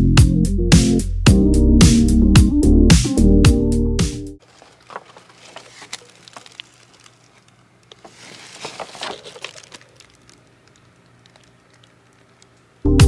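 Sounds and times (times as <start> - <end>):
plastic rustle: 4.4 - 12.8
faint steady hum: 4.4 - 13.0.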